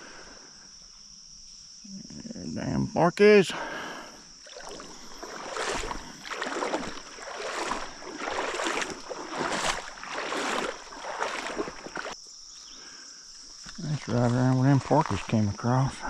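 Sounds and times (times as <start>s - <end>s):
crickets droning: 0.0s - 16.0s
footsteps splashing in water: 4.4s - 12.2s, 13.6s - 16.0s.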